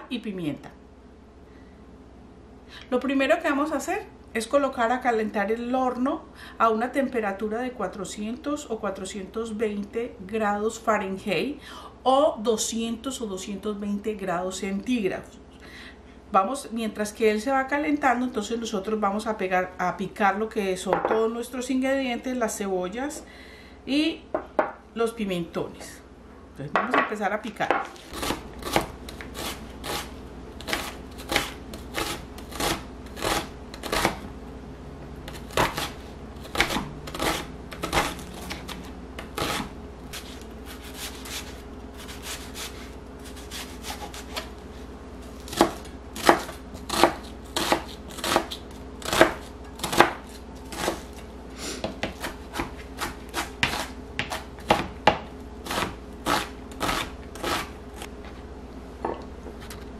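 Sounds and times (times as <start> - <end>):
faint steady hum: 0.0 - 59.9
knife chopping on cutting board: 27.7 - 34.2, 35.3 - 44.5, 45.5 - 51.2, 51.8 - 57.7.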